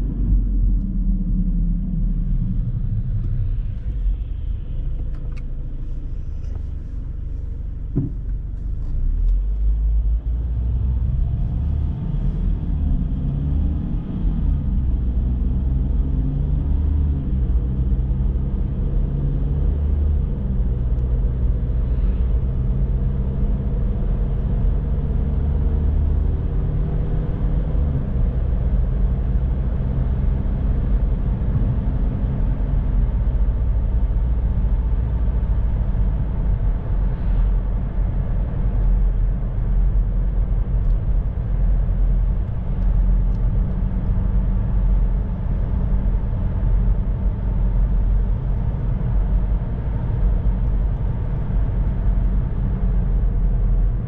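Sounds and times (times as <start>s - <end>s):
car engine and tyres rumbling: 0.0s - 54.0s
short knock: 7.9s - 8.4s.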